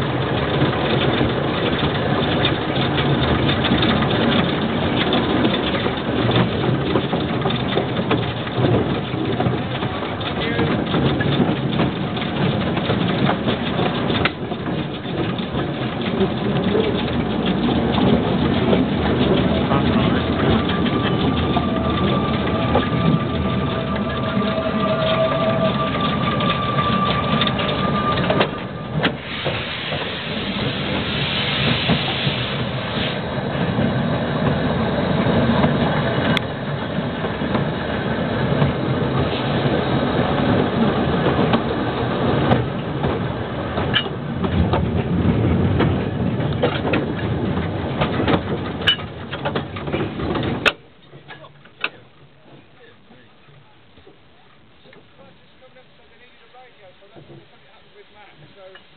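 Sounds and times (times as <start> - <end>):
steam locomotive running: 0.0 - 58.9
wheels clicking over rail joints: 0.0 - 58.9
hissing steam: 19.0 - 37.2
steady high tone: 19.6 - 29.1.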